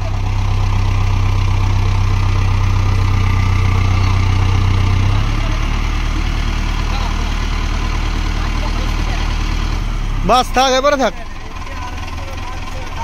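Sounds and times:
diesel tractor engine running: 0.0 - 13.0.

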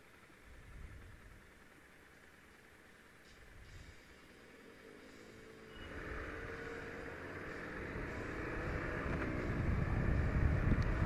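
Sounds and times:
motorcycle engine accelerating: 4.4 - 11.0
wind noise on microphone: 8.4 - 11.0.

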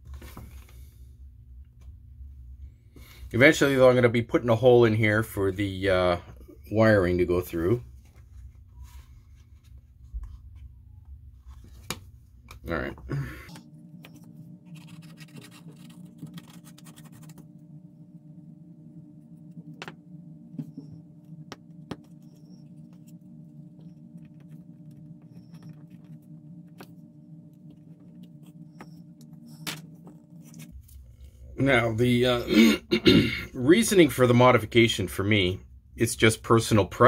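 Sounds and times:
steady low hum: 0.0 - 37.0
plastic scratching on mat: 14.2 - 17.5, 22.0 - 31.0.

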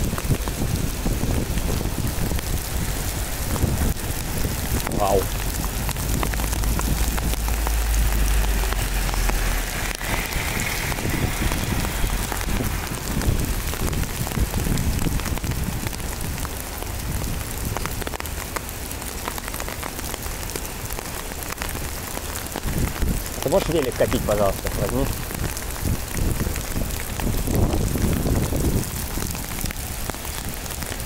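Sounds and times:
low rumble: 0.0 - 15.0
hailstones ticking on ground: 0.0 - 31.0
heavy rain hiss: 0.0 - 31.0.

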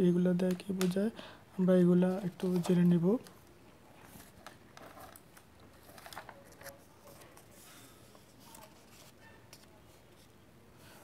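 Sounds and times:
paper page rustling and clicking: 2.1 - 3.4, 4.0 - 10.3.

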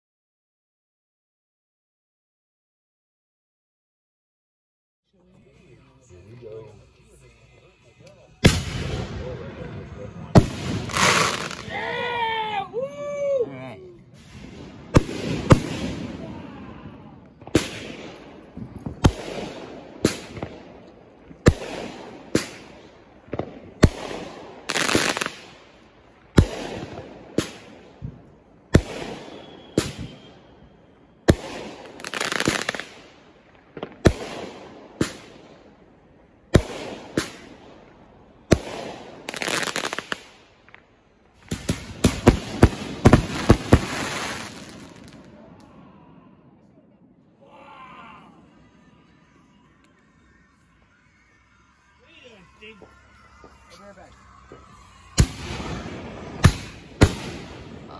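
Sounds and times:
fireworks crackling hiss: 5.4 - 12.9, 14.0 - 45.8, 48.2 - 57.9
fireworks bangs: 8.4 - 12.5, 14.1 - 45.7, 48.4 - 57.9.

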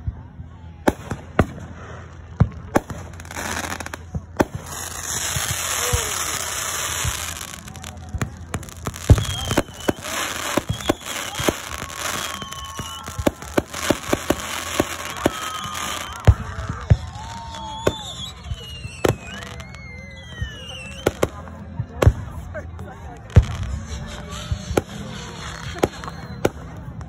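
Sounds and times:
fireworks bangs and pops: 0.8 - 22.5, 23.2 - 27.0
firework whistles sliding in pitch: 8.6 - 21.2, 23.6 - 26.8.

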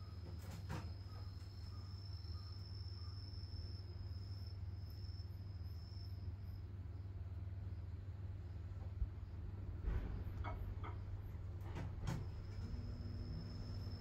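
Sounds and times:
low steady rumble: 3.5 - 14.0.

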